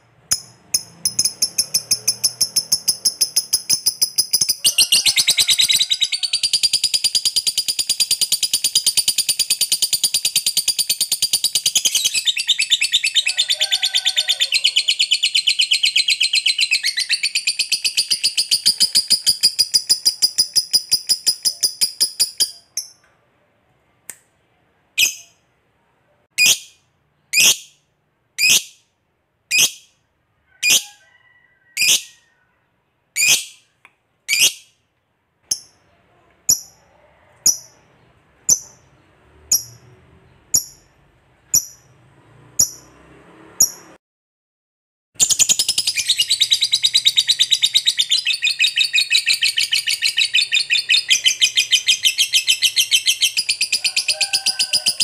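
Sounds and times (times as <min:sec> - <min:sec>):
sharp high bird chirps: 0:00.2 - 0:13.4, 0:14.7 - 0:23.0, 0:25.0 - 0:25.4, 0:33.2 - 0:34.8, 0:40.5 - 0:41.9, 0:45.2 - 0:54.2
lovebird chattering trill: 0:00.3 - 0:13.6, 0:14.3 - 0:23.0, 0:45.2 - 0:55.0.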